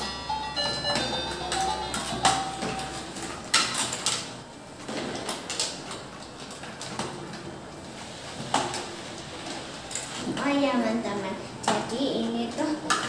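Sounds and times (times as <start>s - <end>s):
toy electronic tune: 0.0s - 3.1s.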